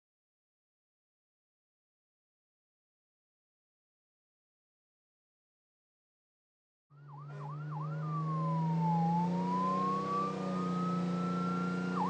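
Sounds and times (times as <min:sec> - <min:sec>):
ambulance siren: 0:06.9 - 0:12.0
low engine hum: 0:07.0 - 0:12.0.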